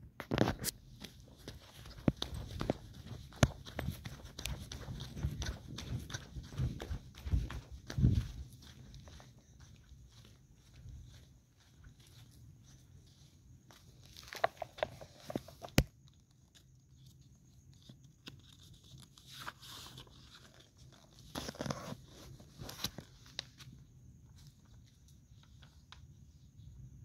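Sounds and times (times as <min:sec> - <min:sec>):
paper rustling and crinkling: 0:14.0 - 0:26.1.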